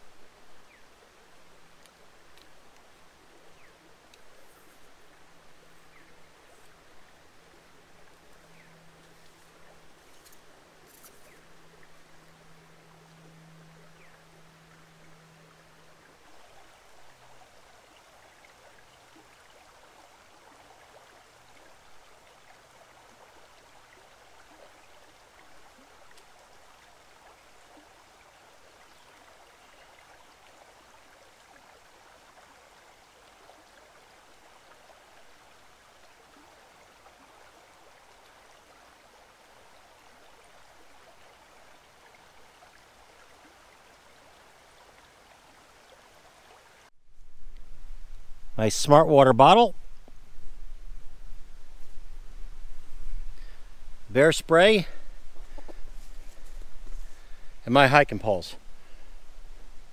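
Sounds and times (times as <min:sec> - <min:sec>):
stream running over rocks: 0:00.0 - 0:59.9
low hum: 0:05.6 - 0:17.5.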